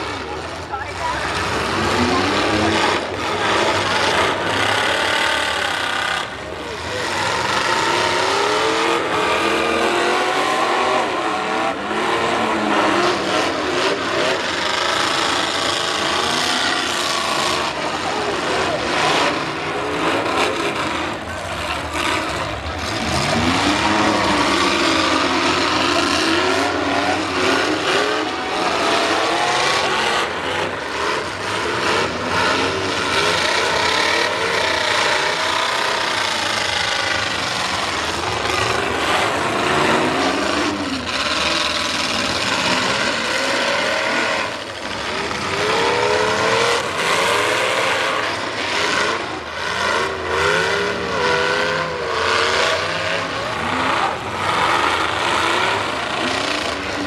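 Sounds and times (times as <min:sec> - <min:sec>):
car engines revving hard: 0:00.0 - 0:57.0.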